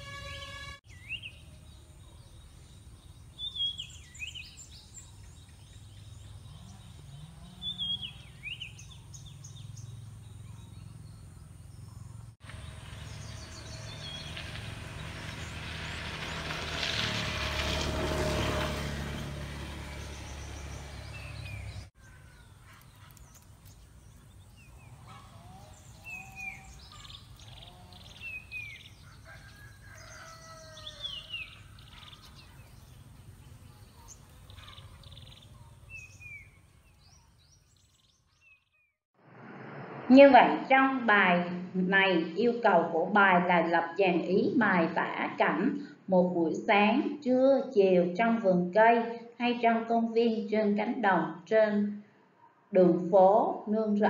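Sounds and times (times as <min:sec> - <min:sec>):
small birds chirping: 0:00.9 - 0:16.5, 0:19.9 - 0:39.0
broad rushing noise: 0:39.2 - 0:41.0.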